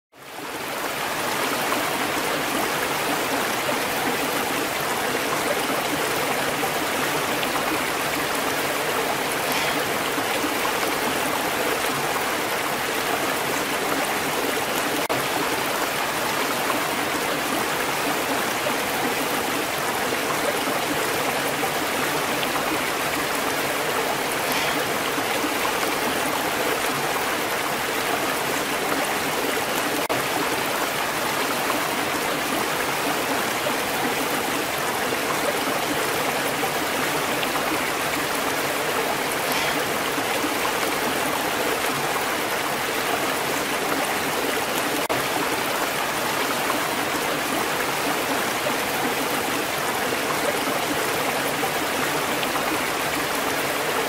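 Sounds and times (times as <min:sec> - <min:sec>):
waterfall rushing: 0:00.3 - 0:54.0.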